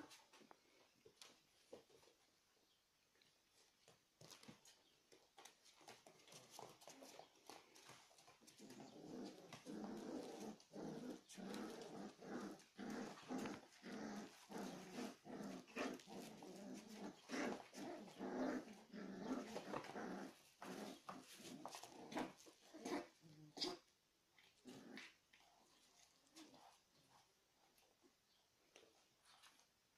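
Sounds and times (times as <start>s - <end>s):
puppies growling in play: 5.4s - 28.0s.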